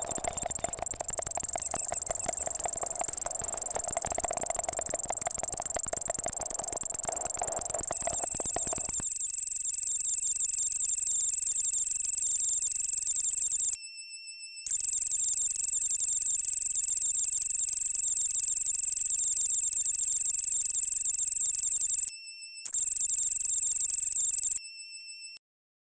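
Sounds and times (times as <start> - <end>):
high-pitched buzzing drone: 0.0 - 9.0.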